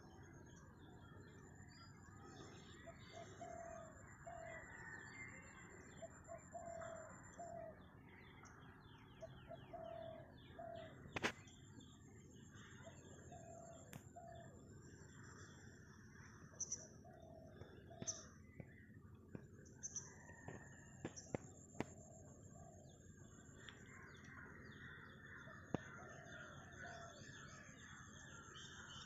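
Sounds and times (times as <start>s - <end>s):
bird cooing: 2.2s - 5.0s, 6.0s - 7.9s, 9.5s - 11.3s, 12.7s - 14.5s, 16.6s - 18.3s, 25.7s - 27.6s.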